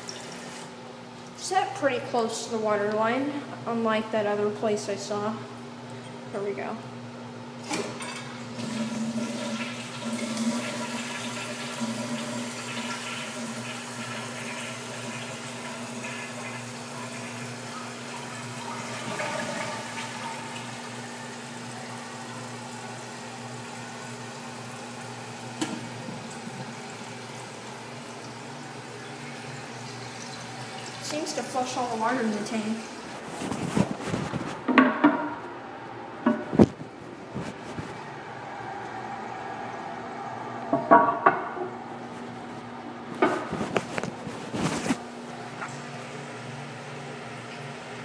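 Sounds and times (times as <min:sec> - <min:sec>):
toilet flushing water rush: 0:00.0 - 0:00.8, 0:07.6 - 0:33.2
water running as tank refills: 0:00.0 - 0:02.9, 0:07.6 - 0:33.6, 0:44.6 - 0:48.0.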